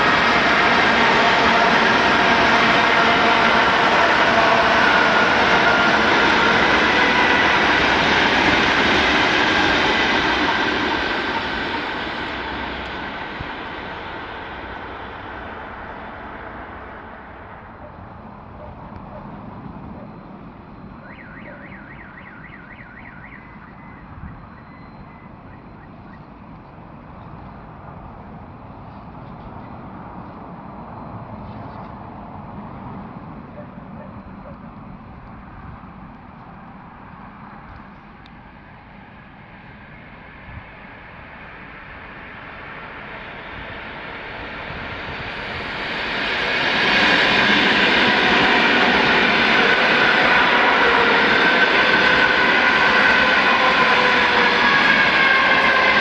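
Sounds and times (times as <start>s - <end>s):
train wheels rushing on rails: 0.0s - 22.0s, 23.0s - 56.0s
low rumble of city noise: 0.0s - 56.0s
car alarm siren warbling: 17.8s - 26.4s, 48.0s - 56.0s.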